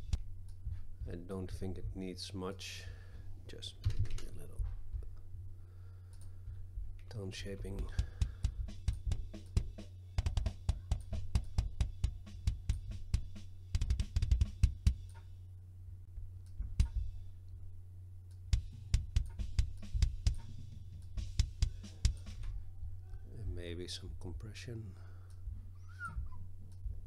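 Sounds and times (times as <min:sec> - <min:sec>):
fast double kick drum strokes: 0:06.5 - 0:15.1, 0:16.6 - 0:17.2, 0:18.5 - 0:22.5
snare drum: 0:07.8 - 0:15.0, 0:18.5 - 0:20.6, 0:21.2 - 0:22.5.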